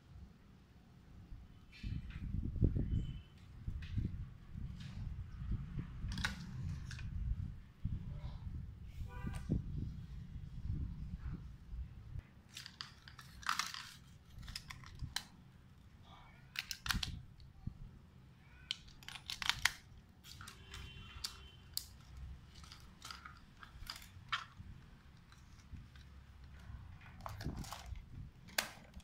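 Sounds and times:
plastic toy car handled: 12.5 - 15.3, 16.5 - 17.2, 18.6 - 20.5, 21.2 - 29.0.

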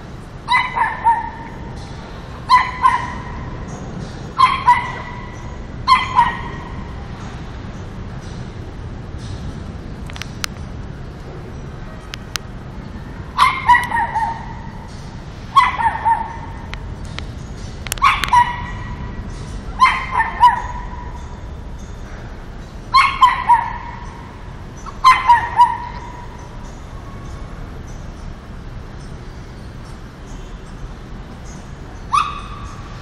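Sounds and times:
small dog yapping: 0.5 - 1.6, 2.5 - 3.4, 4.4 - 5.3, 5.9 - 6.7, 13.4 - 14.6, 15.6 - 16.5, 17.9 - 18.9, 19.8 - 21.1, 23.0 - 24.0, 25.0 - 26.3, 32.1 - 32.7.

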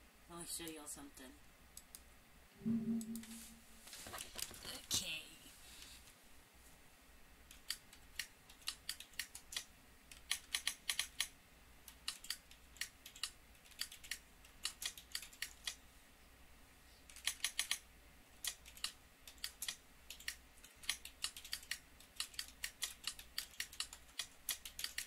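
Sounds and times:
keyboard typing: 7.5 - 11.3, 11.9 - 15.8, 17.1 - 17.8, 18.4 - 25.0.

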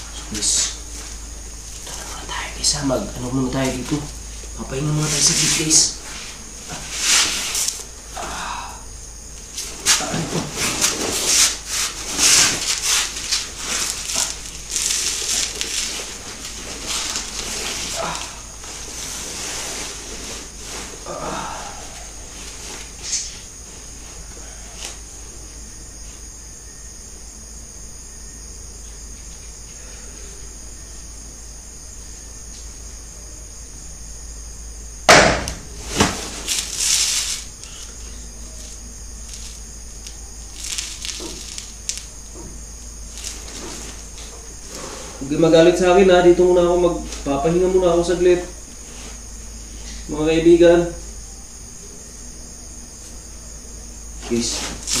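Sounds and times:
hammock fabric rustling and creaking: 0.0 - 8.2, 8.9 - 26.9, 35.5 - 50.1, 52.6 - 55.0
night insects chirring: 0.0 - 55.0
sharp knocks: 35.1 - 36.2.

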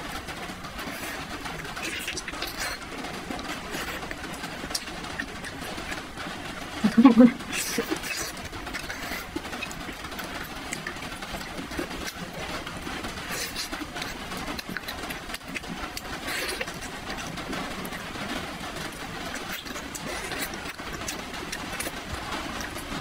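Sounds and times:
wet chewing mouth clicks: 13.3 - 17.2.

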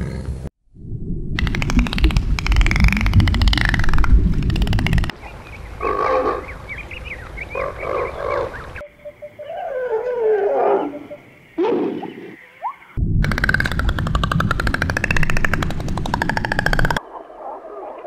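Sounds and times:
dolphin clicks: 1.4 - 5.1, 13.2 - 17.0
low rumble: 13.0 - 16.9.

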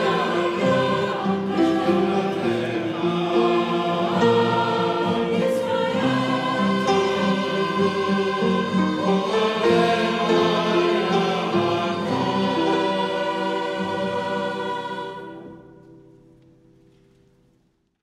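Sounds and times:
mixed choir singing: 0.0 - 16.0.

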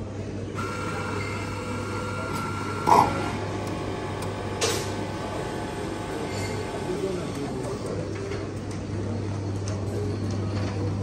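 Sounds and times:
coffee machine motor whirring: 0.6 - 8.0.

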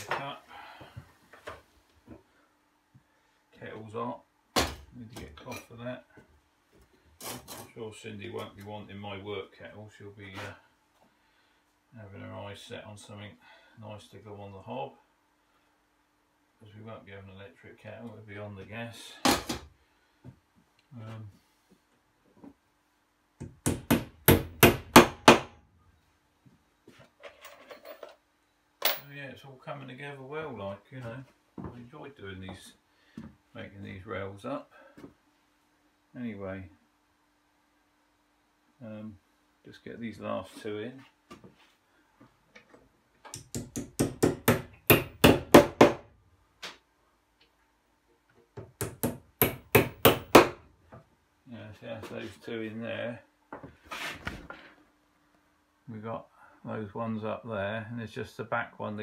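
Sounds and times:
hammer tapping on wood: 43.3 - 46.0.

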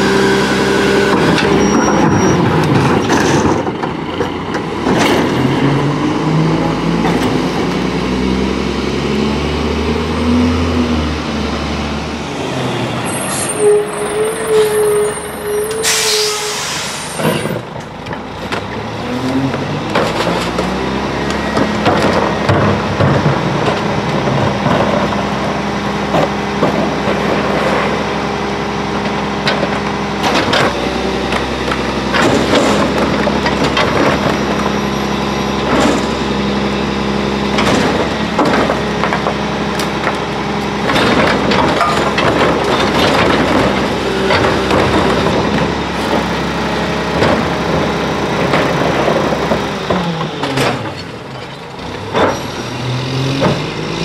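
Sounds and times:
garbage truck engine revving: 0.0 - 54.0
garbage carts clanking on hopper: 1.0 - 7.9, 15.7 - 54.0
air brake hiss: 15.8 - 17.3.

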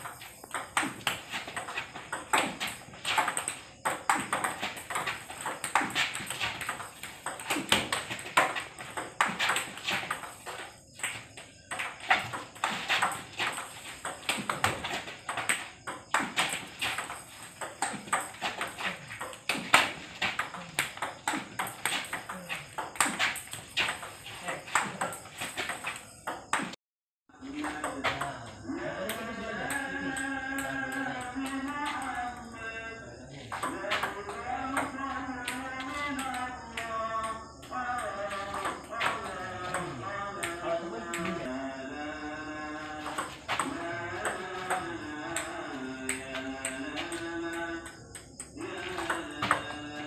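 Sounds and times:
table tennis balls clicking: 0.0 - 26.7.

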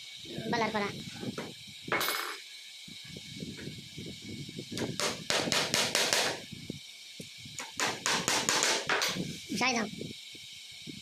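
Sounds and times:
hammer striking nail: 5.0 - 6.4, 7.7 - 9.2.

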